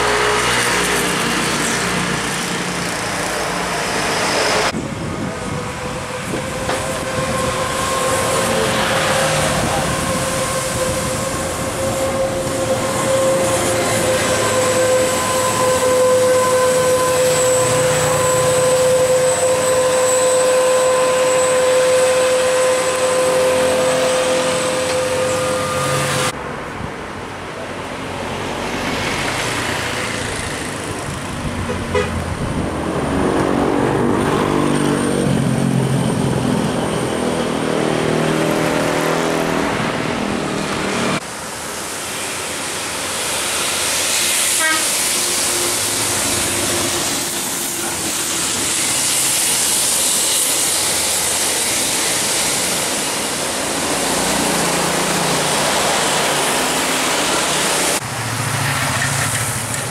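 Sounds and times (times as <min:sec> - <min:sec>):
multi-tone musical bus horn: 0:05.4 - 0:26.4, 0:31.6 - 0:32.3, 0:44.6 - 0:45.8.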